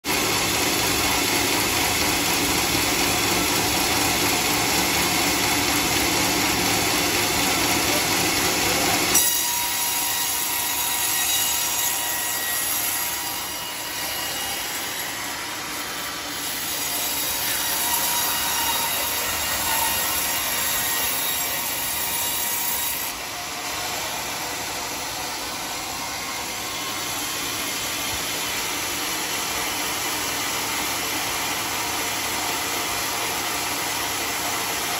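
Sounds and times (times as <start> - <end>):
band sawmill sawing log: 0.1 - 34.9
faint saw squeal: 9.1 - 24.5.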